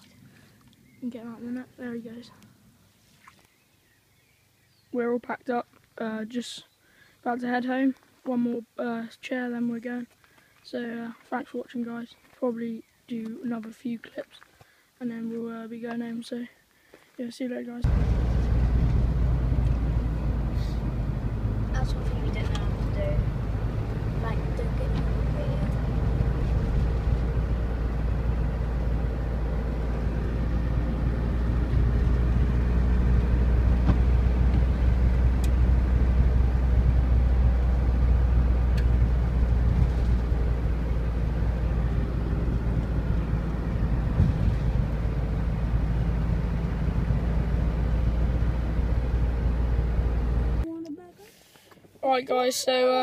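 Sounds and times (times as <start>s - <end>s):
deep rumble: 17.8s - 50.6s
van engine drone: 17.8s - 50.7s
road noise: 17.8s - 52.7s.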